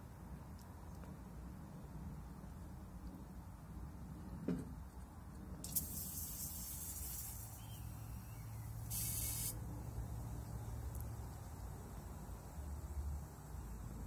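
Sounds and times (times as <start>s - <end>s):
aerosol spray hissing: 5.6s - 9.6s.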